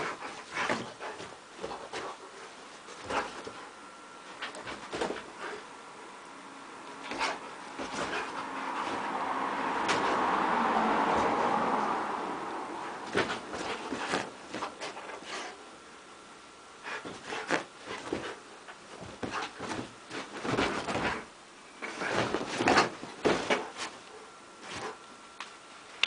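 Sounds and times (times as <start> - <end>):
dog pawing at bedspread: 0.0 - 5.7, 7.0 - 9.2, 9.8 - 10.3, 12.8 - 15.6, 16.8 - 25.0.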